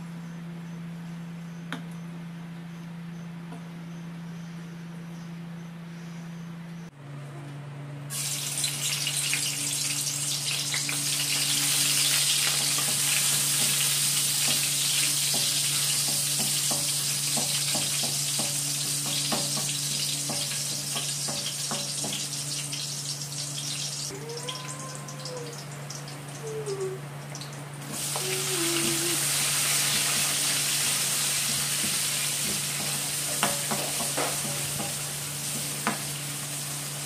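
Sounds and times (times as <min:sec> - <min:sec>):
garlic sizzling in hot oil: 0:08.1 - 0:24.1, 0:27.4 - 0:37.0.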